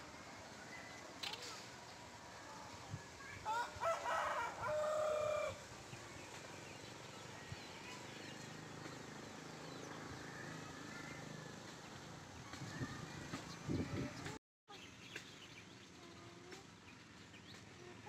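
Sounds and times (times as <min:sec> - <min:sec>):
rooster crowing: 0:03.5 - 0:05.6.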